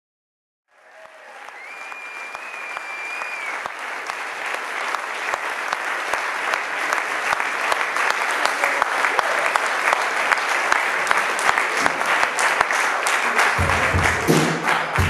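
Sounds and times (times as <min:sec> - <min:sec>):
audience applauding: 0:00.7 - 0:15.0
high whistle: 0:01.5 - 0:03.6.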